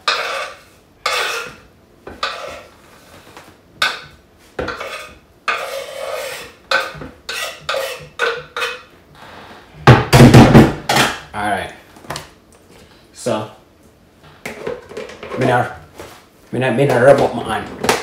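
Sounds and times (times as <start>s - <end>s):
knife scraping wooden board: 0.0s - 1.6s, 2.2s - 2.7s, 4.6s - 8.8s.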